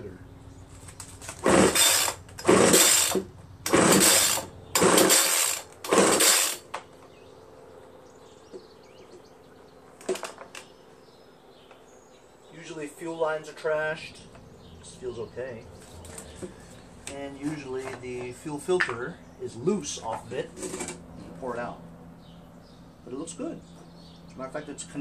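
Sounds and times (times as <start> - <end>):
recoil starter rope pulls: 0.9 - 6.6.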